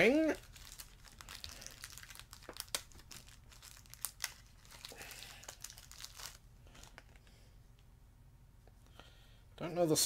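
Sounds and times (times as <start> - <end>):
plastic wrapper crinkling: 0.0 - 7.3.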